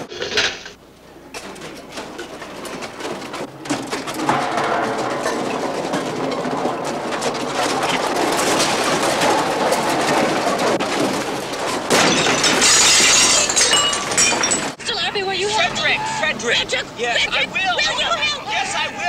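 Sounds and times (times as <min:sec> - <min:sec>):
clattering commotion: 0:00.0 - 0:14.8
loud crashing: 0:01.4 - 0:14.8.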